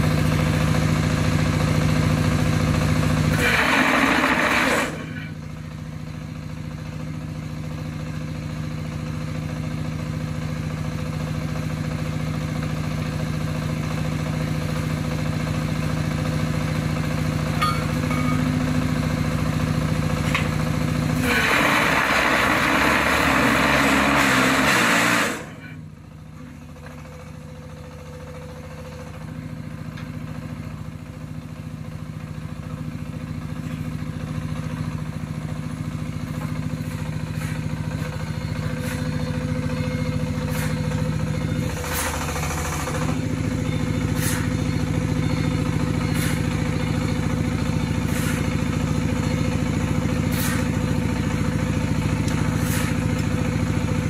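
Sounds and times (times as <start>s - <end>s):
diesel engine running: 0.0s - 54.0s
shovel scraping on concrete: 40.4s - 40.8s, 44.1s - 44.6s, 46.1s - 46.5s, 48.0s - 48.6s, 50.2s - 50.8s, 52.4s - 53.1s
noisy rattle: 40.5s - 43.5s.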